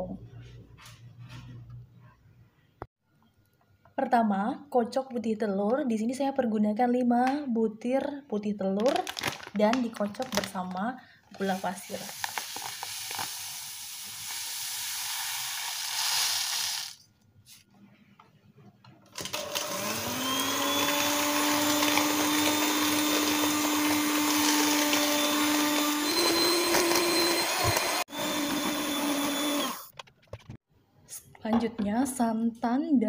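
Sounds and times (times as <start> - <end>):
electric mixer whining: 19.2 - 29.9.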